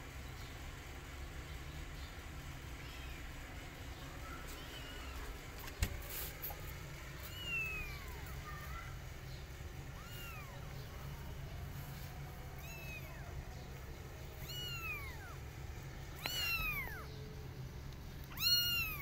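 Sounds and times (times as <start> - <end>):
kittens meowing: 2.7 - 5.8, 6.5 - 17.4, 18.0 - 19.0.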